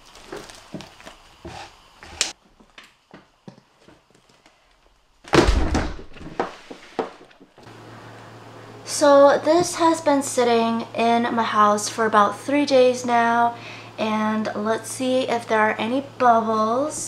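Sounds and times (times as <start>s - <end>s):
heavy thud into plastic bin: 5.3s - 6.6s.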